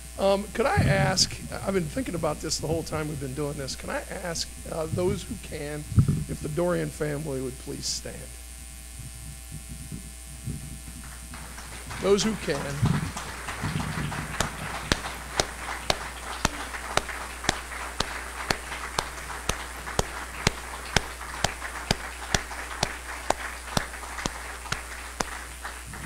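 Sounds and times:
close hand claps: 11.0s - 26.0s
crowd applauding: 11.0s - 26.0s.

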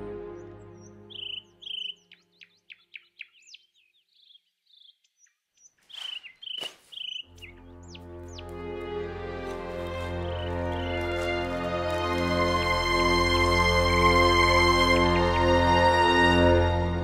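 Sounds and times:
soft music: 0.0s - 2.5s, 7.2s - 17.0s
birds chirping and whistling: 0.4s - 8.5s.

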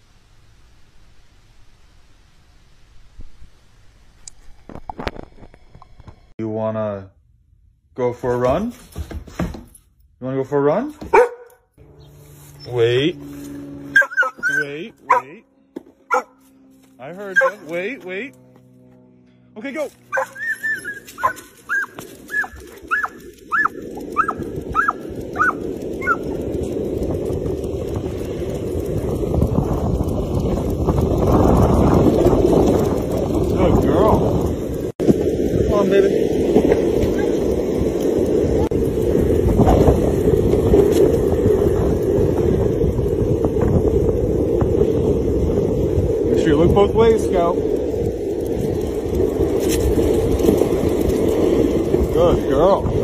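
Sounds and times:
dog yipping excitedly: 11.0s - 11.6s, 13.9s - 15.3s, 16.1s - 16.4s, 17.3s - 17.7s, 20.1s - 26.2s
wind on microphone: 20.4s - 53.0s.

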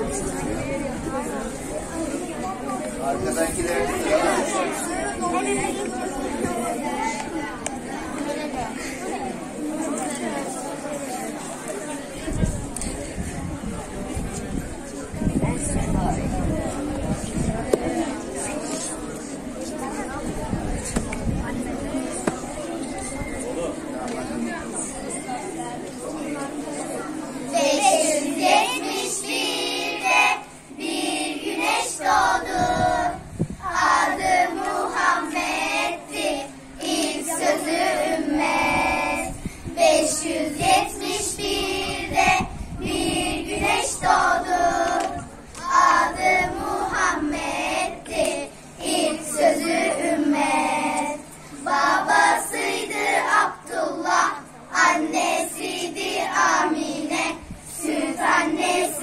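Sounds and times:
children's choir singing a hymn: 0.0s - 11.6s, 23.2s - 59.0s.

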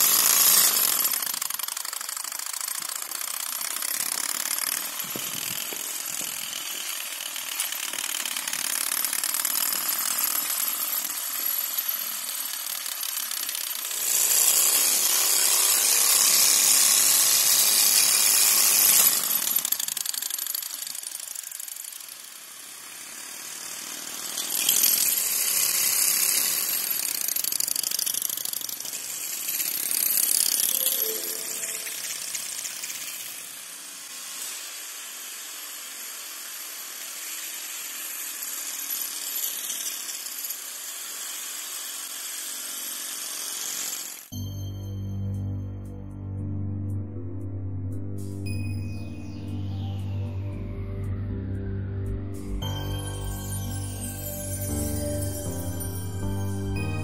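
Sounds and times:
model engine car rattling: 0.0s - 35.0s, 35.6s - 44.3s.

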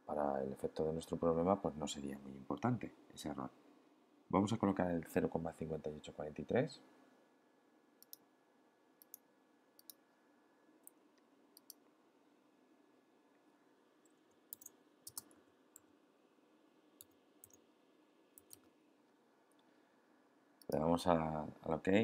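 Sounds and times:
steady room hum: 0.0s - 22.0s
mouse and keyboard clicks: 14.5s - 15.4s.

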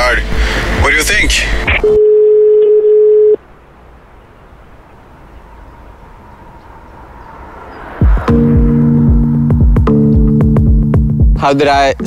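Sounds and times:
single-pitched electronic tone: 1.7s - 3.4s.

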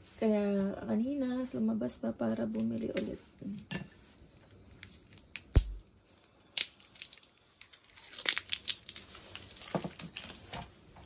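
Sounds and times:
plastic packaging crinkling: 6.0s - 11.0s.

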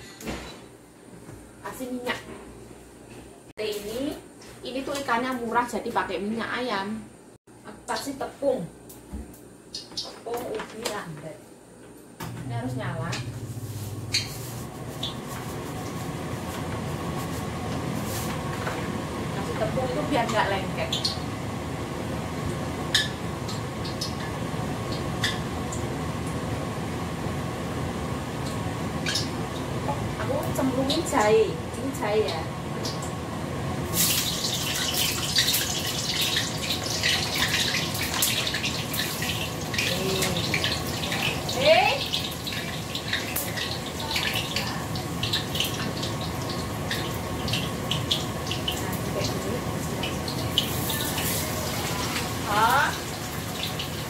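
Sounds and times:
gas burner rushing: 12.2s - 54.0s
ginger sizzling in hot oil: 13.5s - 54.0s.

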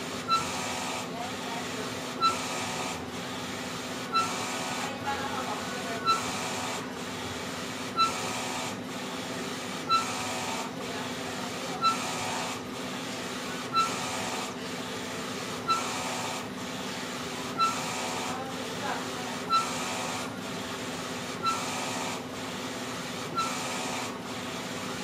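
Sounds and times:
printer whirring and humming: 0.0s - 25.0s
short high printer chirp: 0.2s - 0.7s, 2.1s - 2.8s, 4.1s - 4.8s, 6.0s - 6.6s, 7.9s - 8.4s, 9.8s - 10.6s, 11.8s - 12.5s, 13.7s - 14.3s, 15.6s - 16.0s, 17.5s - 18.3s, 19.5s - 20.0s, 21.4s - 21.8s, 23.3s - 24.0s.

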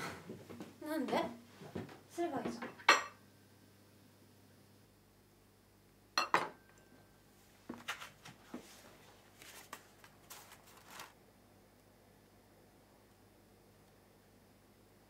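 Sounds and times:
soft clicks and rustles: 7.7s - 11.9s.

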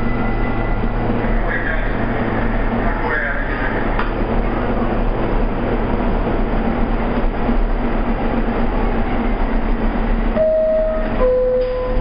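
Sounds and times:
subway car rumble and hum: 0.0s - 12.0s
door chime note: 10.4s - 12.0s.

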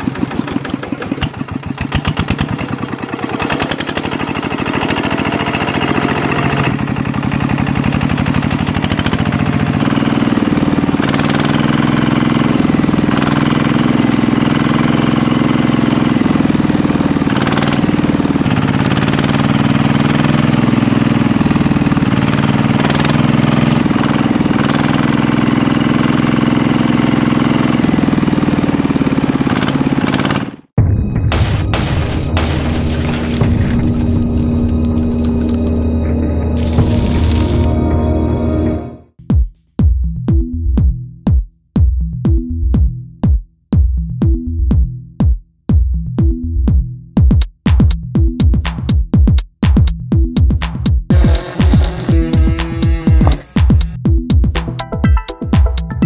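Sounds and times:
power tiller engine chugging: 0.0s - 30.7s, 31.3s - 39.0s, 51.1s - 54.0s.

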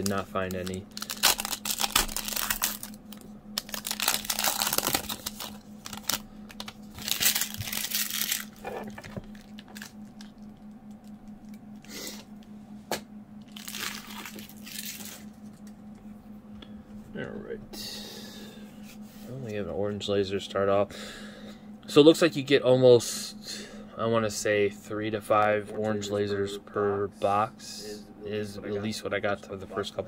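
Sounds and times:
cards rustling: 0.0s - 10.4s
foil card pack crinkling: 0.0s - 10.6s, 13.5s - 15.4s.

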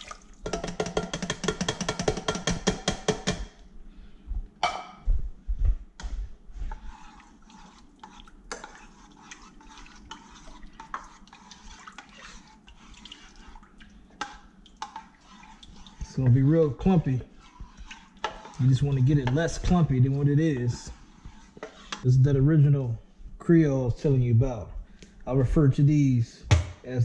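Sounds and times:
spoon stirring thick soup: 0.2s - 3.7s, 6.0s - 22.4s.

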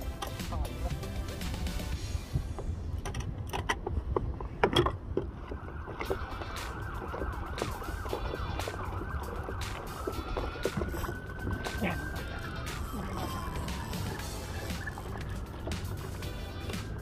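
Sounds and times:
wind rumble on microphone: 1.9s - 16.2s
fishing reel whirring: 9.4s - 16.9s.

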